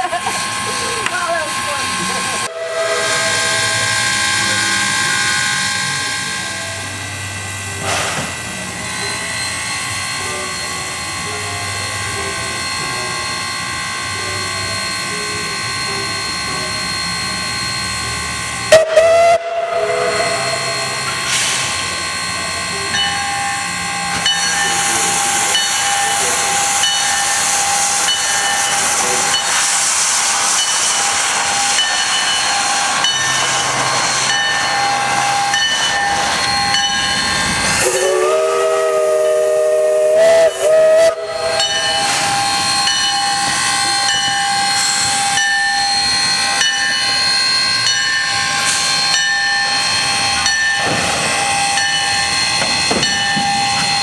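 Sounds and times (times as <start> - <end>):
steam locomotive hissing: 0.0 - 54.0
steam whistle blowing: 2.4 - 5.8, 18.7 - 21.9, 37.7 - 45.3.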